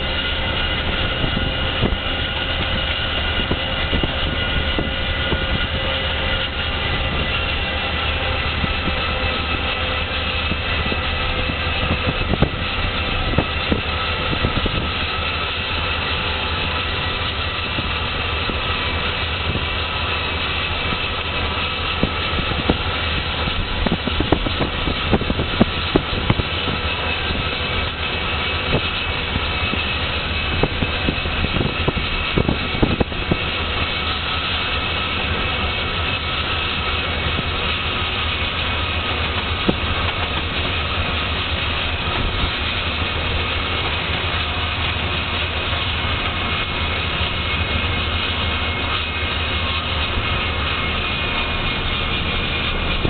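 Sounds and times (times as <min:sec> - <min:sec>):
diesel locomotive drone: 0:00.0 - 0:53.0
high whine: 0:00.0 - 0:53.0
vehicle road and wind noise: 0:00.0 - 0:53.0.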